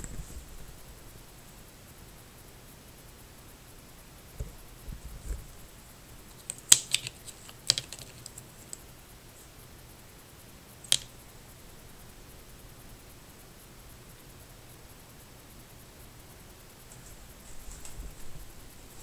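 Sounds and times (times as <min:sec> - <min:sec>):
sharp plastic clicks: 0:06.3 - 0:08.8, 0:10.8 - 0:11.2.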